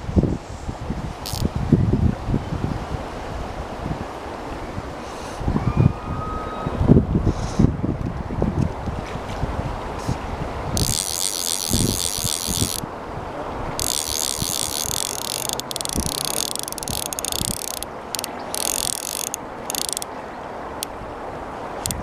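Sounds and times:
wind rumble on microphone: 0.0s - 19.8s
fishing reel ratchet clicks: 1.2s - 1.5s, 10.8s - 12.8s, 13.8s - 20.1s, 21.8s - 22.0s.

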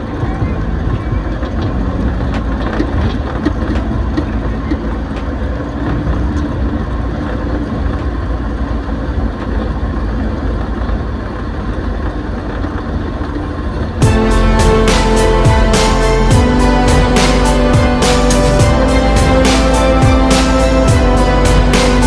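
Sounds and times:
motorcycle engine running: 0.0s - 22.0s
road noise: 0.0s - 22.0s.

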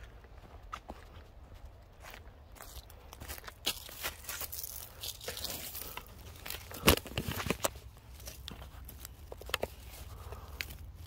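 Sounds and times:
dirt and small stones crunching: 0.0s - 11.0s.

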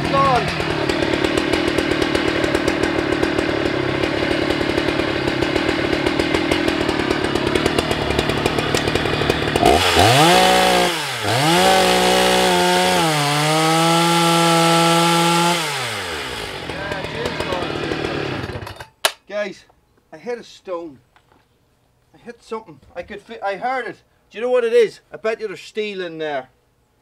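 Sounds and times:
chainsaw idling and cutting log: 0.0s - 18.9s.

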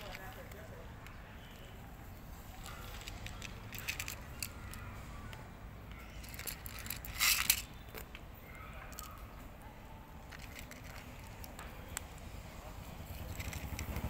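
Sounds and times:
cat crunching dry kibble: 0.0s - 1.7s, 2.5s - 4.8s, 10.3s - 11.6s, 13.0s - 14.0s.

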